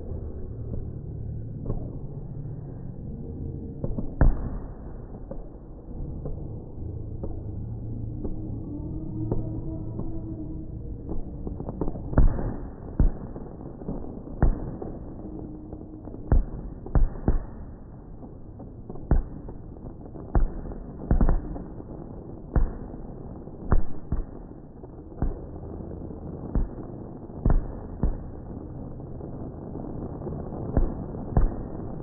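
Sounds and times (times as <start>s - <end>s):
fireworks bursting: 9.3s - 32.0s.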